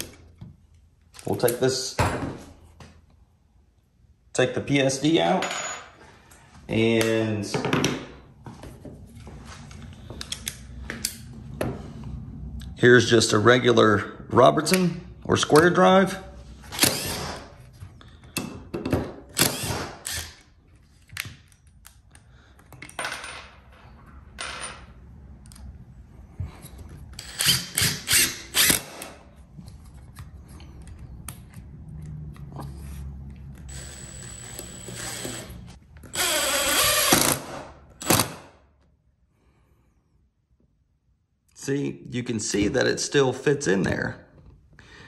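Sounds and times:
impact driver driving screws: 16.7s - 17.7s, 19.3s - 20.5s, 27.1s - 29.2s, 33.7s - 38.5s.

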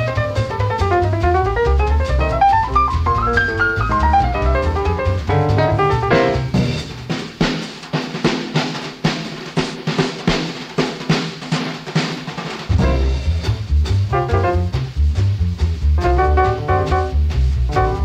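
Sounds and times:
double bass: 0.0s - 7.1s, 12.7s - 18.0s
drum kit break: 0.0s - 18.0s
jazz piano: 0.0s - 18.0s.

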